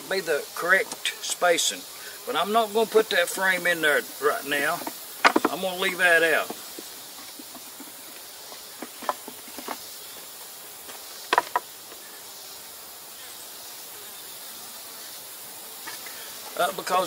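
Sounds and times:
bees humming: 0.0 - 17.0
wooden hive parts knocking: 4.7 - 12.0.

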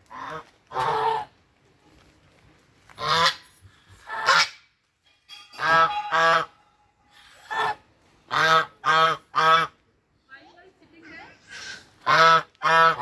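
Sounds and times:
geese honking: 7.5 - 9.8, 12.0 - 13.0.

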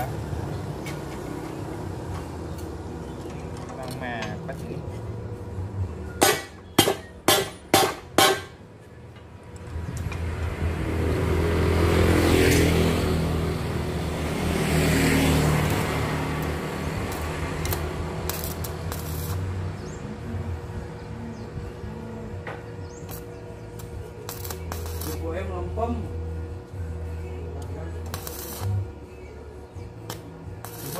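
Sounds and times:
vehicle passing on road: 9.7 - 22.0.

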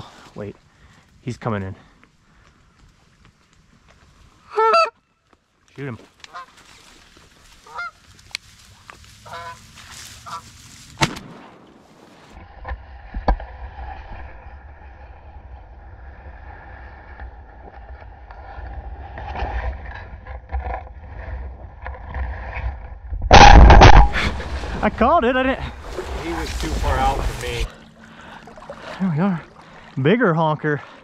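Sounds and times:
goose honking: 4.5 - 4.9, 7.7 - 8.0, 9.2 - 10.6
shotgun shot: 11.0 - 11.8, 23.3 - 25.0
wind rumbling on microphone: 11.7 - 27.8.

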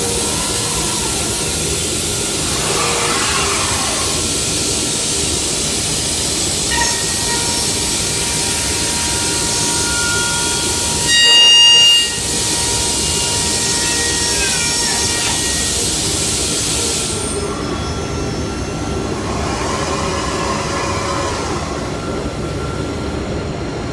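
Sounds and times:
high whistle: 8.6 - 15.8.

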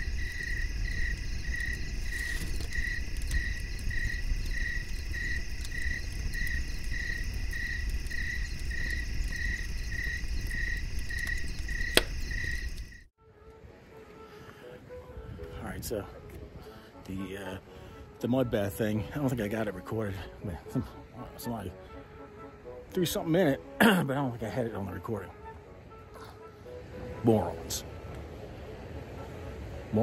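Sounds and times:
crickets chirping: 0.0 - 13.1
sharp click: 11.9 - 12.2.

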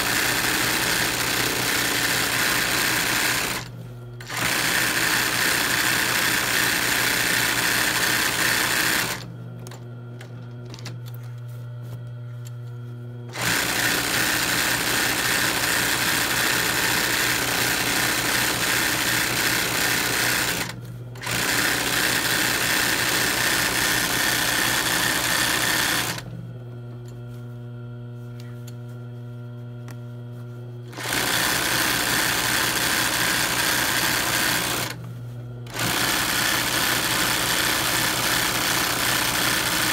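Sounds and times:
sewing machine stitching: 0.0 - 9.3, 13.3 - 26.3, 30.9 - 35.0, 35.7 - 39.9
sewing machine motor hum: 0.0 - 28.8, 30.6 - 39.9.

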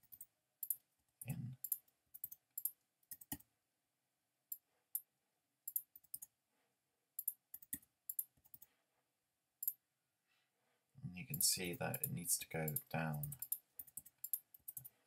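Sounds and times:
keyboard and mouse clicking: 0.0 - 3.4, 5.7 - 6.3, 7.2 - 8.7, 11.3 - 15.0.

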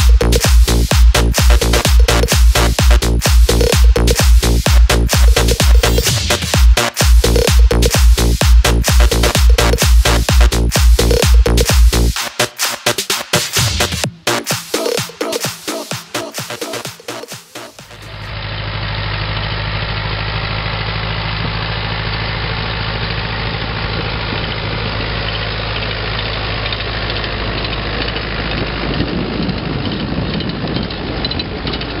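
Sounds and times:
dance music: 0.0 - 18.3
tractor engine running: 0.0 - 32.0.

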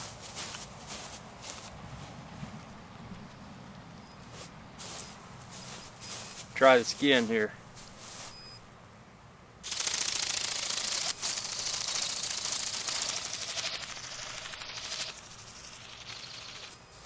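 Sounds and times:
robotic bird wings buzzing: 9.6 - 17.0.

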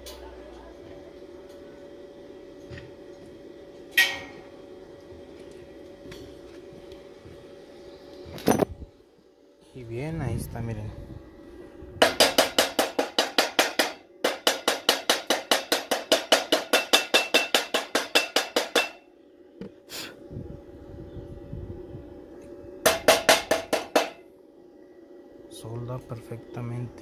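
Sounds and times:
chipping hammer tapping metal: 12.0 - 19.0.

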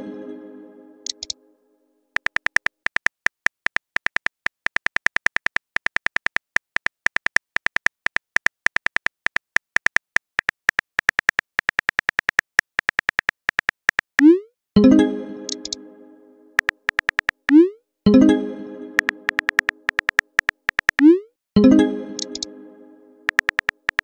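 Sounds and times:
phone keyboard clicks: 2.2 - 14.2, 16.6 - 17.6, 19.0 - 21.0, 22.2 - 22.5, 23.3 - 24.0.

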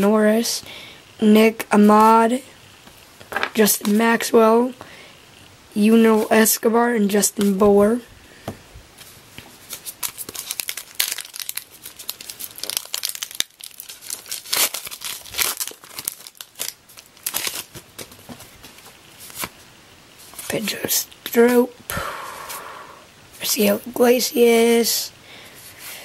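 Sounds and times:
plastic wrapper tearing and crinkling: 9.6 - 19.6.

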